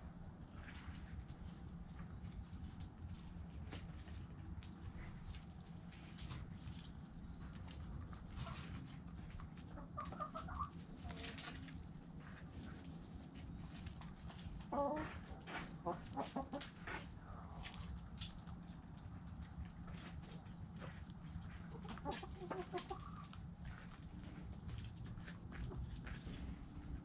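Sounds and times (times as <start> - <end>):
light clicks and scratches: 0.5 - 27.0
hens clucking: 7.5 - 18.0, 18.9 - 27.0.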